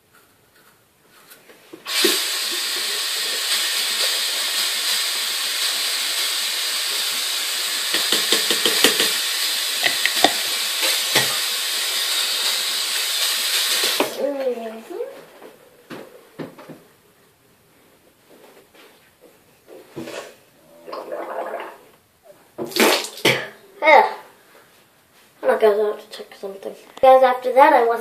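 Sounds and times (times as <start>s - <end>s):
faucet running water: 1.8s - 14.5s
toothbrush knocking against sink: 7.9s - 9.2s, 9.8s - 10.4s.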